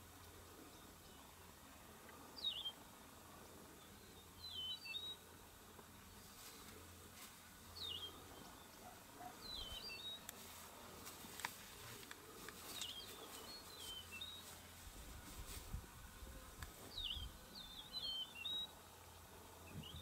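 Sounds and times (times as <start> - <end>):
bird chirping: 2.4 - 2.8, 3.8 - 5.2, 7.8 - 10.3, 16.9 - 18.8.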